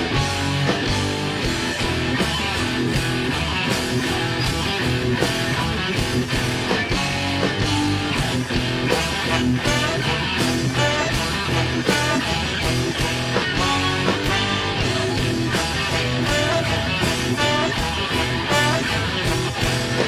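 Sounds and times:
drums: 0:00.0 - 0:20.0
electric guitar: 0:00.0 - 0:20.0
horn section: 0:08.8 - 0:20.0.

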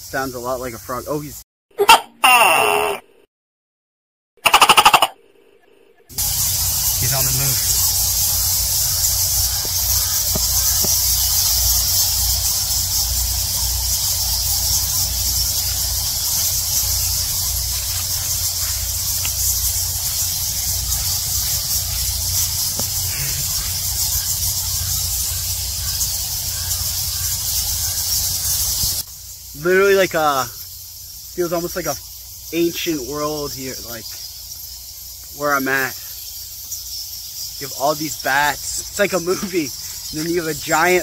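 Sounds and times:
bats squeaking and chattering: 0:00.0 - 0:01.4, 0:04.4 - 0:05.2, 0:06.1 - 0:41.0.

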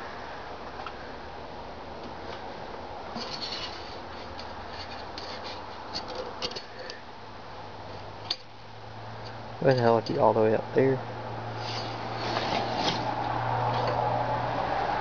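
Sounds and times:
faint scratches: 0:03.2 - 0:06.8, 0:11.6 - 0:14.0.

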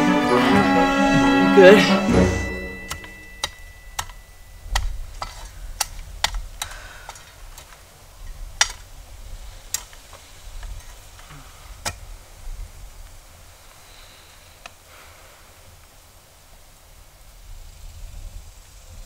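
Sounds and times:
shovel clicks and knocks in soil: 0:03.4 - 0:12.1.

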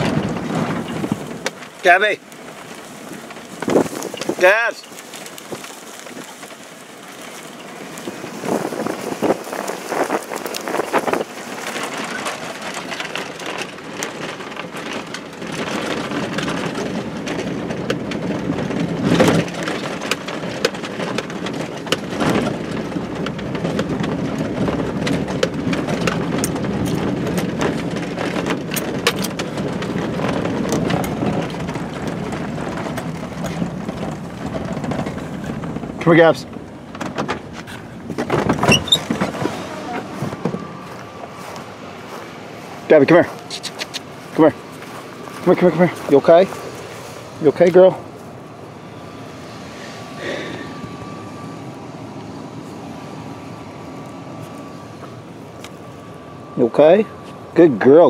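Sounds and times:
rattles and knocks in cab: 0:00.0 - 0:06.7, 0:08.1 - 0:40.9
truck engine and tyres rumbling: 0:00.0 - 0:58.0.

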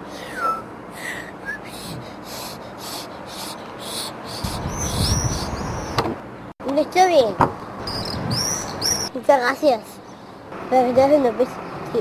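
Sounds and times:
high chirping bird calls: 0:01.5 - 0:06.2, 0:07.8 - 0:09.2.

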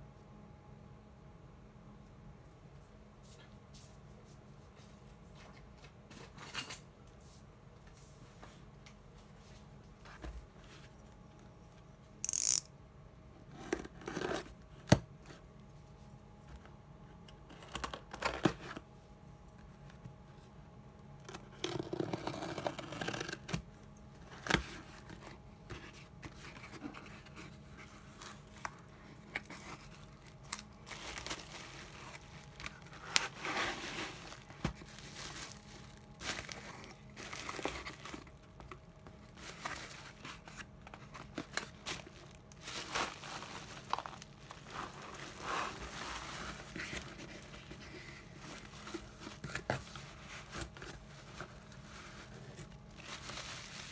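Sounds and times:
knife slitting packing tape: 0:12.2 - 0:12.7
bubble wrap crinkling: 0:26.0 - 0:53.9.

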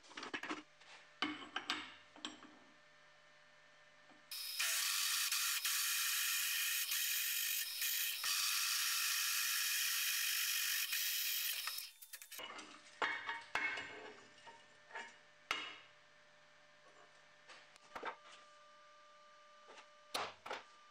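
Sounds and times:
drill press cutting metal: 0:04.3 - 0:12.4.

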